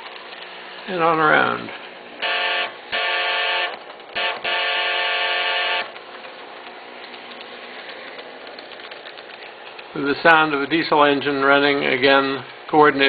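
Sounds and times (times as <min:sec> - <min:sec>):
model train horn through small speaker: 0:02.2 - 0:05.9.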